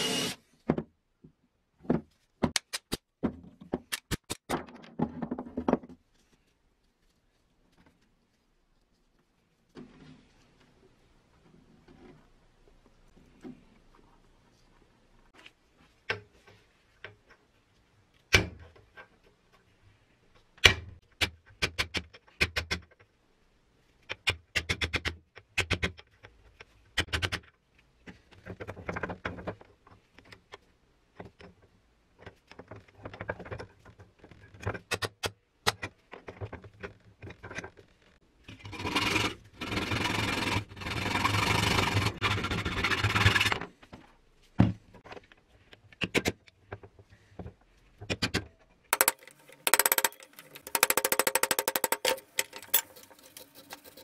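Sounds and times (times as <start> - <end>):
hacksaw cutting: 38.6 - 43.6, 49.0 - 54.0
metal part clicking in bench vise: 49.0 - 54.0.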